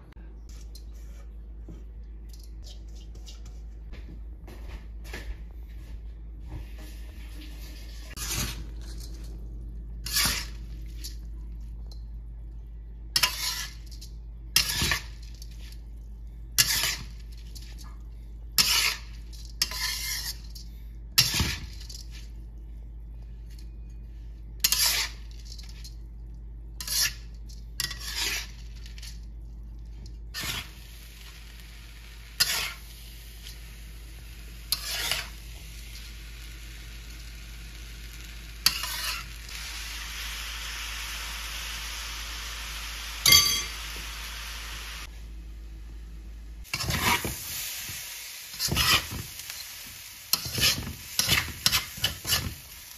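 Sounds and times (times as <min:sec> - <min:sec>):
spatula scraping a wok: 0:06.9 - 0:09.0, 0:10.0 - 0:11.2, 0:13.2 - 0:15.8, 0:16.6 - 0:17.9, 0:18.6 - 0:22.3, 0:24.5 - 0:25.9, 0:26.8 - 0:29.2, 0:30.3 - 0:36.0, 0:38.6 - 0:39.5, 0:46.7 - 0:52.8.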